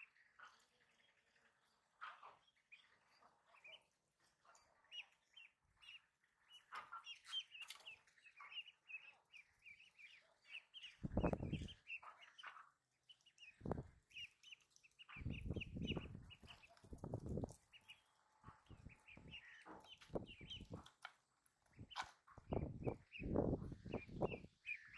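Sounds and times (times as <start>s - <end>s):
ducklings peeping: 0.0s - 24.9s.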